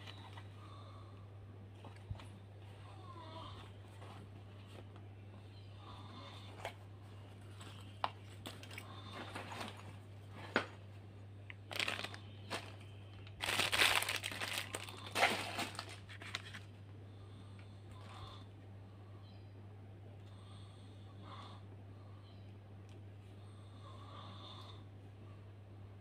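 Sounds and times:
steady low hum: 0.0s - 26.0s
rustling and crinkling by hand: 1.6s - 5.5s, 6.3s - 16.9s.

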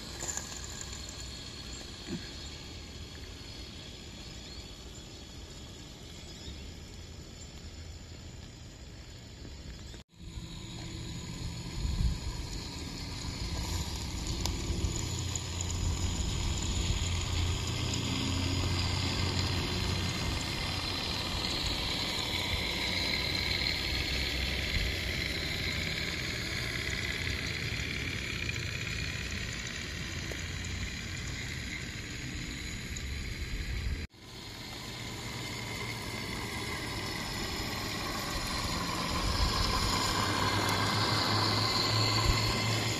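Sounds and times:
wheels rolling on rails: 0.0s - 42.9s
steam hiss: 10.2s - 31.1s, 34.1s - 42.9s.

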